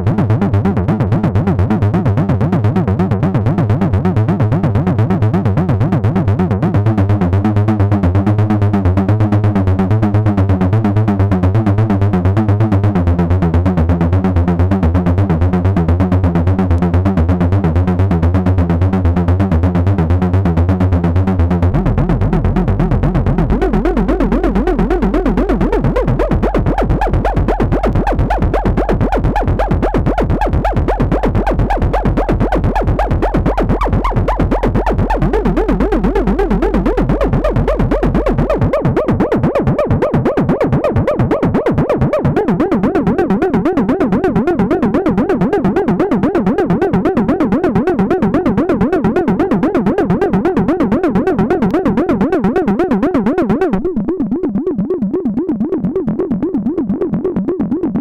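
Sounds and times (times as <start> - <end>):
sustained synth bass note: 0.0 - 58.0
repeating electronic synth pulses: 21.1 - 58.0.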